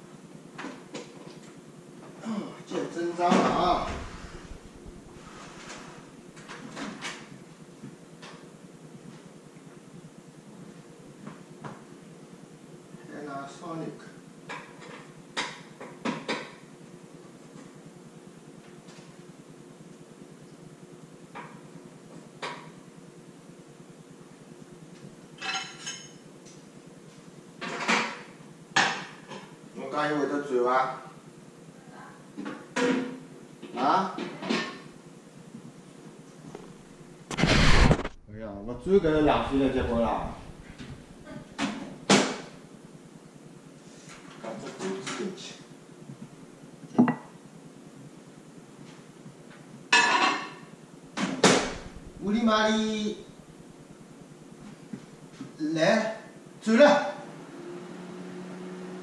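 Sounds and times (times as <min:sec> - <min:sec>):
glass clink: 0:47.0 - 0:47.2.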